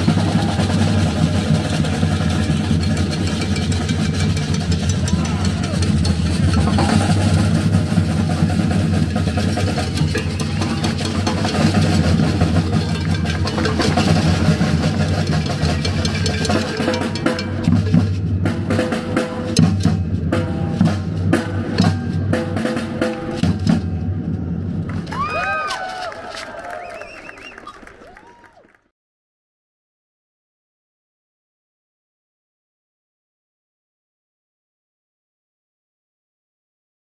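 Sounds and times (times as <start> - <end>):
bass drums: 0.0 - 25.3
snare drums: 0.0 - 27.4.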